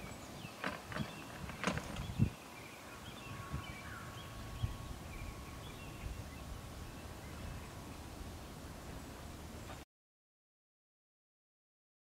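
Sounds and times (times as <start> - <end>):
faint bird chirps: 1.9 - 8.2
low steady rumble: 3.2 - 9.8.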